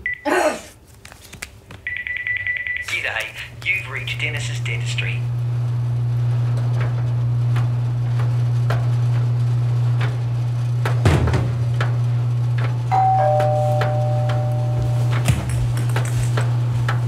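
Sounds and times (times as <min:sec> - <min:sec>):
washing machine humming: 0:01.6 - 0:17.0
washing machine thump: 0:10.8 - 0:11.6
two-note doorbell chime: 0:12.9 - 0:15.2.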